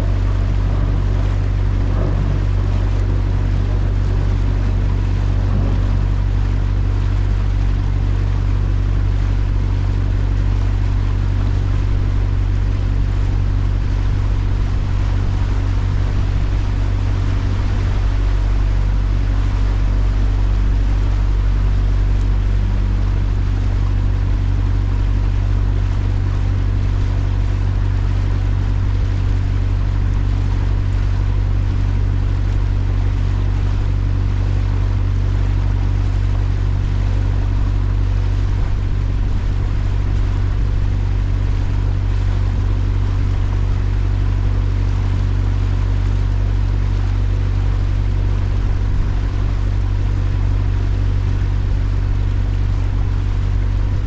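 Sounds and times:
boat engine humming: 0.0s - 54.0s
water rushing: 0.0s - 54.0s.

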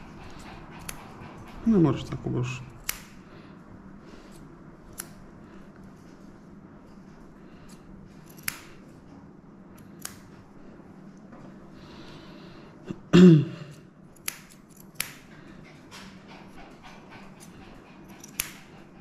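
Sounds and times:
scissors snipping fur: 0.0s - 3.3s, 4.2s - 6.0s, 7.2s - 9.0s, 9.7s - 10.5s, 13.7s - 15.4s, 16.7s - 19.0s.

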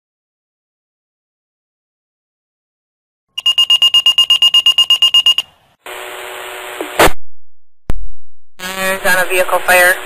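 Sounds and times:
rapid high-pitched pager beeping: 3.4s - 5.5s
radio hiss: 5.8s - 7.2s, 8.6s - 10.0s.

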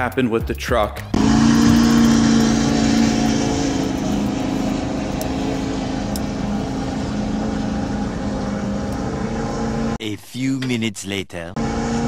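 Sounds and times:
pickup engine at high revs: 1.1s - 10.0s, 11.6s - 12.0s.

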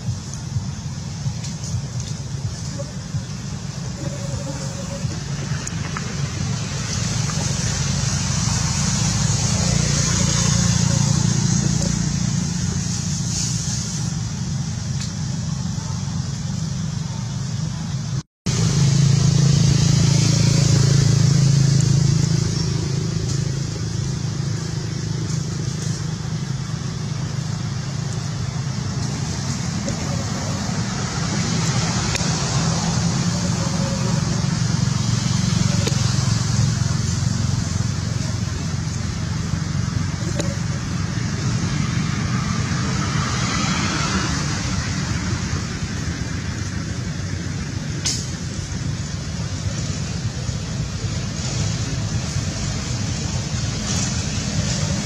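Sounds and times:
high hiss: 0.0s - 43.9s
road traffic rumble: 0.0s - 55.0s.

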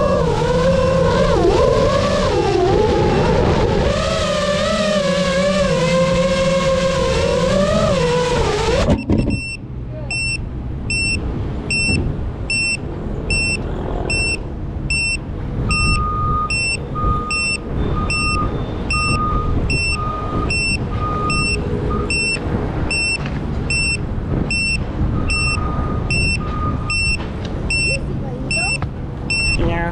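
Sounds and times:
drone motors cutting out: 0.0s - 9.5s
short high beeps: 8.9s - 29.7s
slower lower beep: 9.0s - 29.7s.

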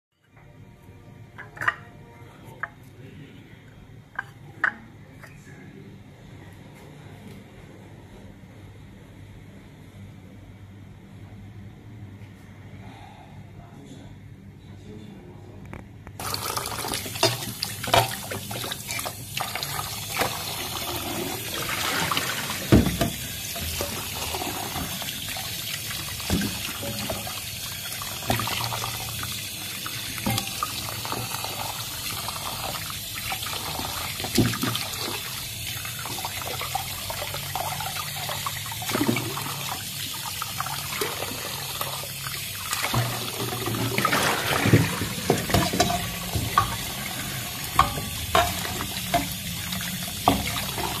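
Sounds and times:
tap water running into steel bowl: 16.2s - 51.0s.

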